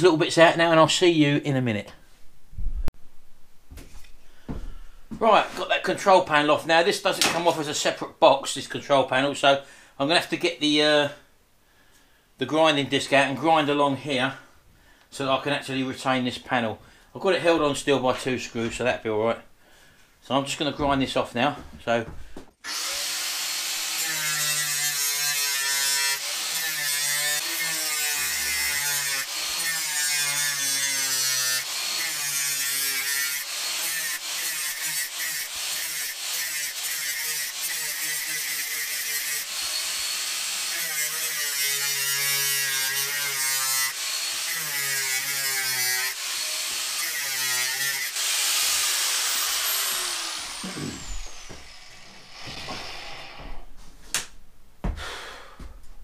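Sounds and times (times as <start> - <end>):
angle grinder cutting sheet metal: 22.6 - 53.7
grinder winding down whine: 48.1 - 53.6.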